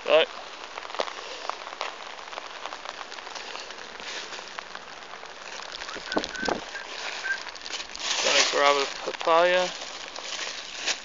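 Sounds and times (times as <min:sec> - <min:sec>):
rain pattering: 0:00.0 - 0:11.0.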